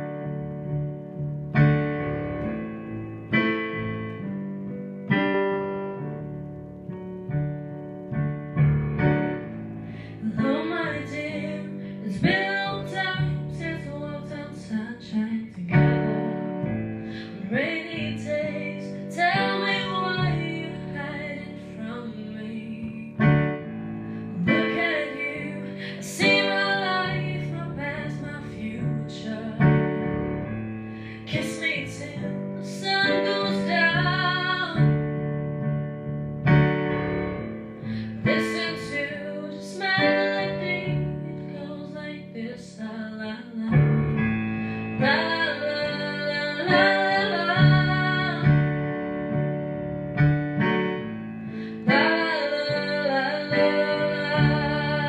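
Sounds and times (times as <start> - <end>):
piano: 0.0 - 55.0
woman singing a pop ballad: 10.0 - 23.4, 24.2 - 35.1, 37.8 - 48.9, 51.6 - 55.0.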